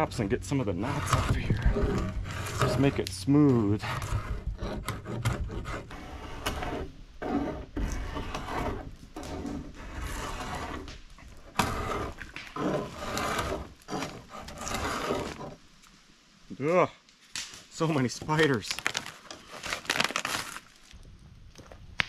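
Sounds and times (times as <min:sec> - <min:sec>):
knife scraping along a pole: 0:00.0 - 0:15.6.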